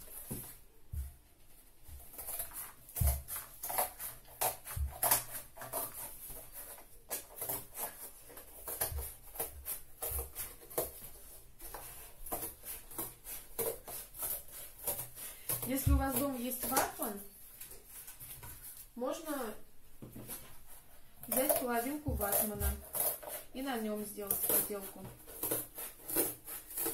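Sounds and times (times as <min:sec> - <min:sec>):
scissors cutting cardboard: 0:02.0 - 0:17.7, 0:21.2 - 0:26.9.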